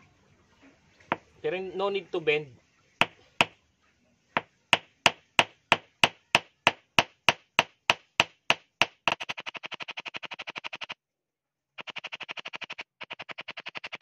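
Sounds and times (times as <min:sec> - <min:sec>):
hammer striking wire on stone: 0:03.0 - 0:03.6, 0:04.4 - 0:09.3.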